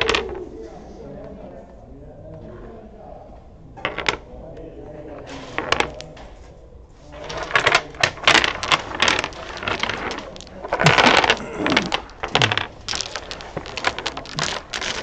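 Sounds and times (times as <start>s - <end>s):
dominoes clattering on wooden table: 0.0s - 0.4s, 3.8s - 4.3s, 5.1s - 6.2s, 7.1s - 15.0s.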